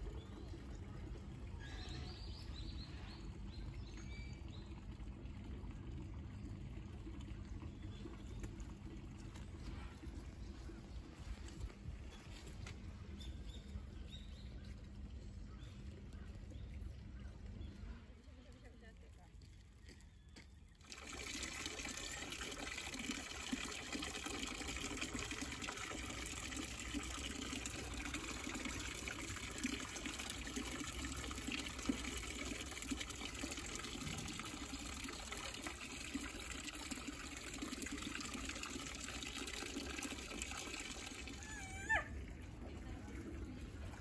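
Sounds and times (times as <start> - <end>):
water pouring into bathtub: 20.8 - 41.9.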